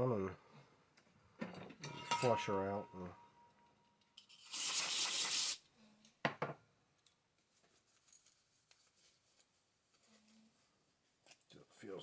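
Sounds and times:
aerosol spray hissing: 4.4 - 5.6.

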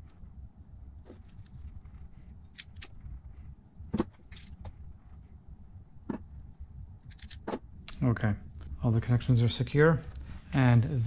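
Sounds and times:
low steady hum: 0.0 - 11.0
scissors snipping wires: 2.4 - 3.0.

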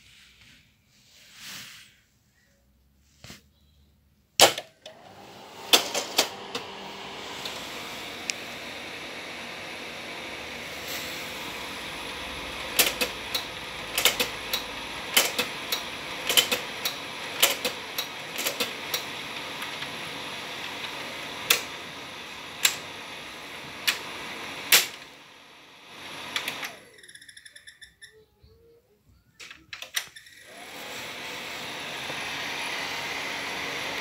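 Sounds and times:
projector cooling fan: 4.8 - 26.9
projector mechanism clicking: 12.7 - 19.1.

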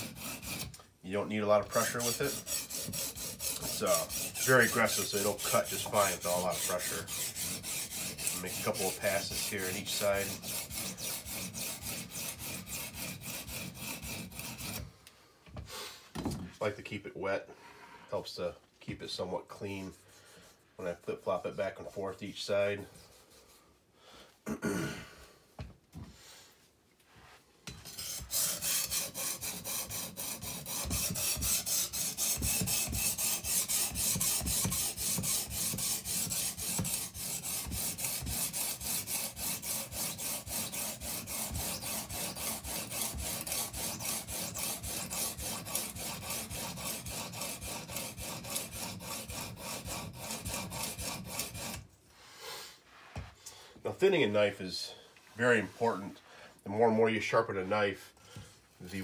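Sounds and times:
sharpening stone stroking knife blade: 27.8 - 42.6.

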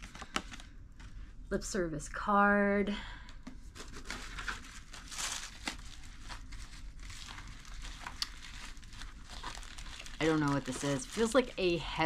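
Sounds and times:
packaging crinkling and rustling: 0.0 - 1.3, 3.6 - 12.0.

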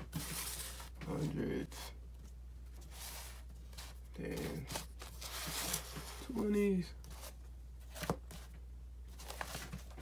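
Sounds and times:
paper rustles: 2.8 - 8.5, 9.1 - 10.0.

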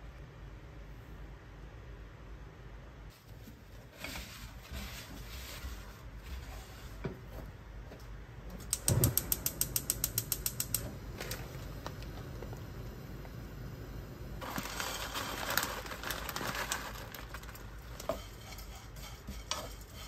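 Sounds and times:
paper wiping inside a wok: 3.1 - 7.5, 14.4 - 20.0
rapid sharp clicks: 8.7 - 10.8.

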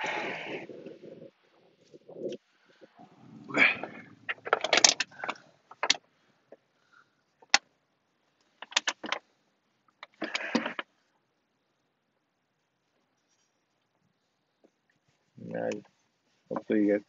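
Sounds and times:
clicks and knocks of car parts: 4.3 - 6.0, 8.6 - 9.3
scraping rustle: 14.6 - 17.0.

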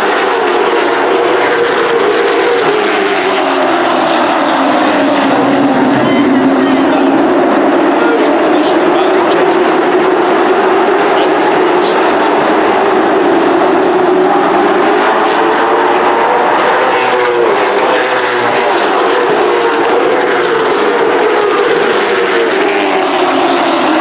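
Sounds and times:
race car engines droning: 0.0 - 24.0.

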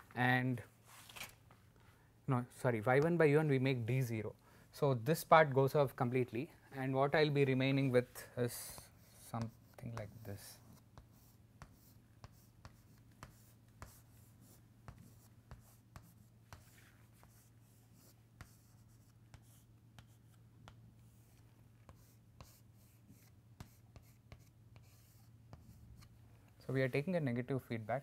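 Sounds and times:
chalk scratching on chalkboard: 8.5 - 20.4, 21.0 - 26.1.

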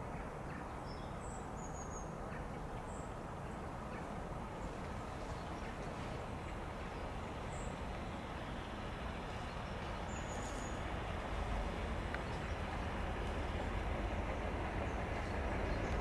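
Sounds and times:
diesel locomotive engine rumbling: 1.4 - 16.0
bird chirping: 9.3 - 10.9.

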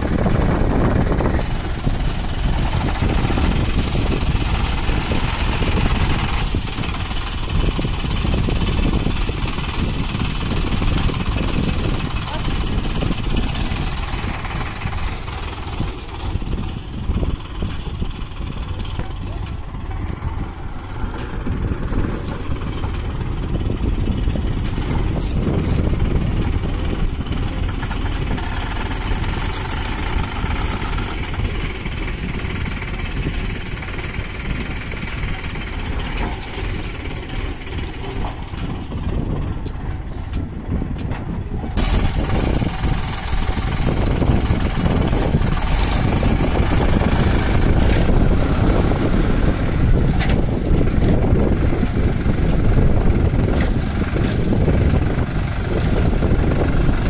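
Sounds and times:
tractor diesel engine running: 0.0 - 57.0
blade scraping soil: 20.4 - 34.0, 39.7 - 52.1.

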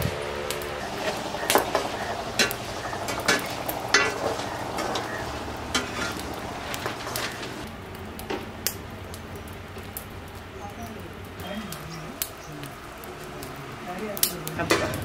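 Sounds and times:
frying sizzle: 0.0 - 15.0
metal ladle clinking and scraping: 2.4 - 5.1, 5.7 - 7.6.

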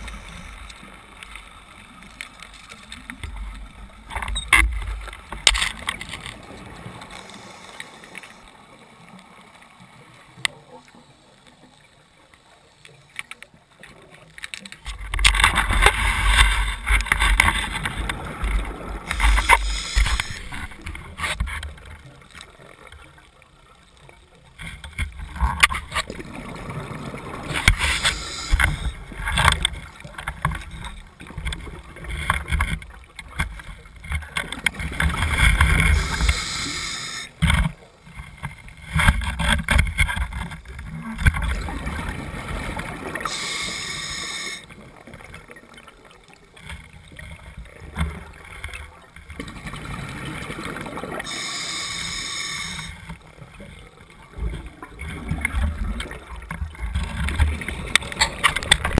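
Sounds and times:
underwater rumble: 0.0 - 59.0
scuba regulator breathing bubbles: 18.1 - 20.9, 26.3 - 29.2, 35.4 - 37.4, 42.5 - 44.8, 51.1 - 53.1.

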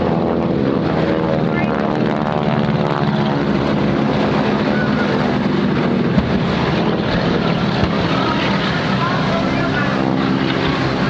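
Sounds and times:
aircraft engine drone: 0.0 - 11.0
wind on microphone: 0.0 - 11.0
pyrotechnic bang: 6.1 - 8.4.

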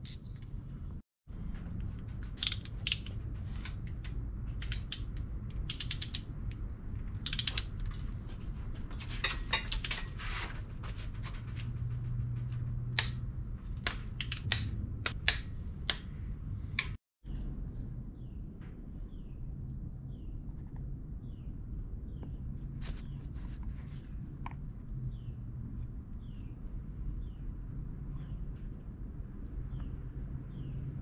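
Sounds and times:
ratcheting torque wrench clicking: 7.2 - 7.7.

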